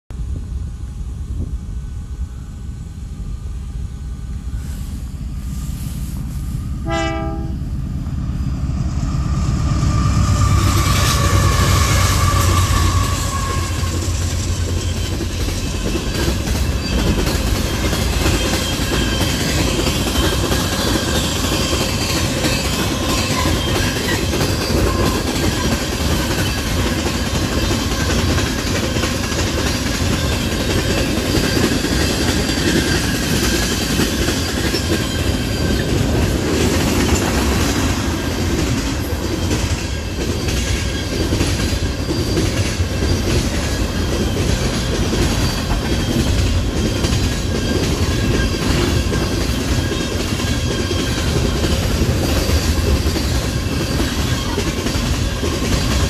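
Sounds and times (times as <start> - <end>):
locomotive rumble: 0.2 - 56.0
train horn blast: 6.8 - 7.8
train cars clickety-clack: 9.2 - 56.0.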